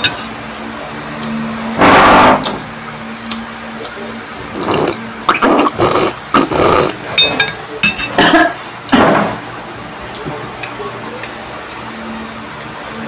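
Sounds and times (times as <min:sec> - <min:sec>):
person slurping and gobbling food: 0:04.5 - 0:07.0.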